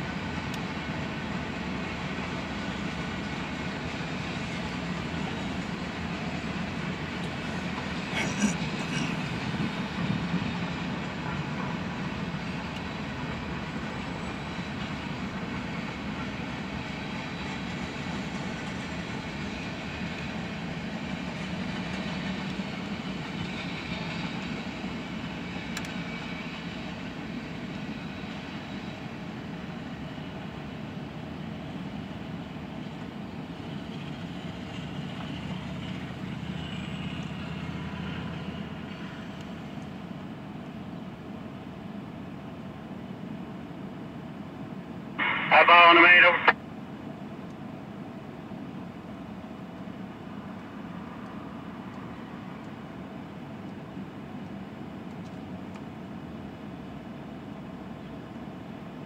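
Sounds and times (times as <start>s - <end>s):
steel train wheels on track: 0.0s - 42.0s.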